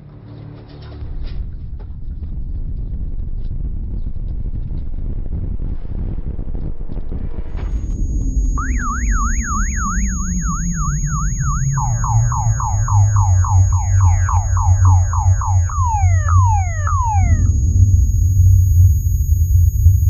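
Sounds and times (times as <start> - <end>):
deep steady rumble: 1.6 - 20.0
car alarm whooping and sweeping: 7.8 - 20.0.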